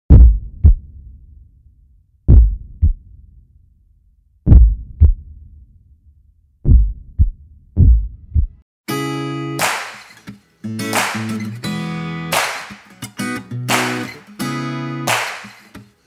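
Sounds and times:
heartbeat thumps: 0:00.1 - 0:01.0, 0:02.3 - 0:03.1, 0:04.5 - 0:05.5, 0:06.6 - 0:08.6
guitar music: 0:08.9 - 0:16.0.

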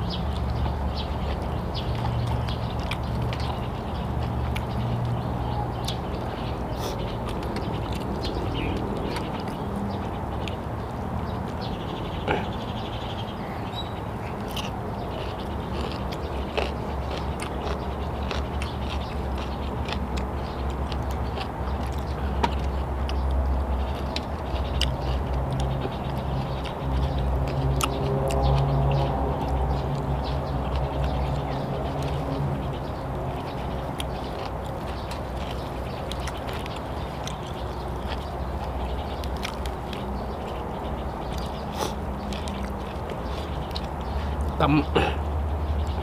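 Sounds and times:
chewing and lip-smacking: 0:00.0 - 0:12.7, 0:13.7 - 0:44.8.

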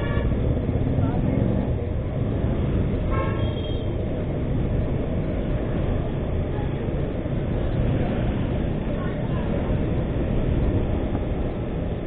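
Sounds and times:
motorcycle horn toot: 0:03.1 - 0:03.9.

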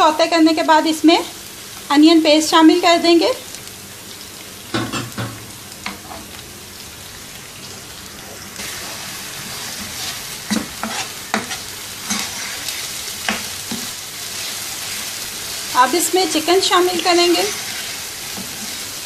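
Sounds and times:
paste sizzling in hot oil: 0:00.0 - 0:19.0
spatula scraping and tapping pan: 0:09.6 - 0:14.5.

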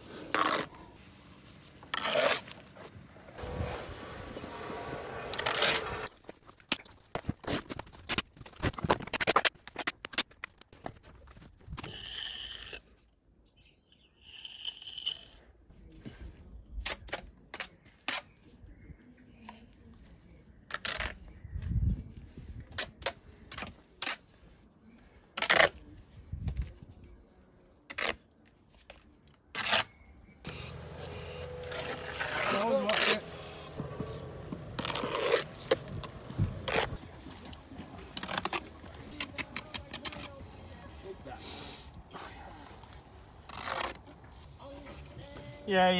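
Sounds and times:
trowel scraping mortar: 0:01.9 - 0:02.6, 0:03.4 - 0:06.1, 0:11.8 - 0:13.0, 0:14.1 - 0:15.5, 0:29.5 - 0:37.0.

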